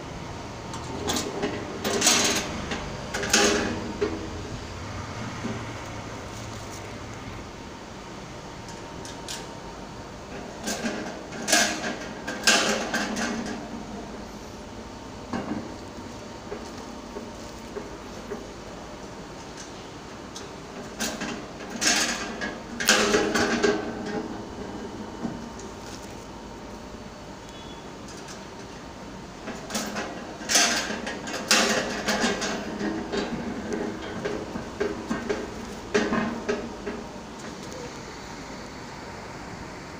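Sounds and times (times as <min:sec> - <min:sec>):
vending machine clunking and rattling: 0:00.7 - 0:04.5, 0:10.3 - 0:14.0, 0:20.7 - 0:25.8, 0:29.4 - 0:37.6.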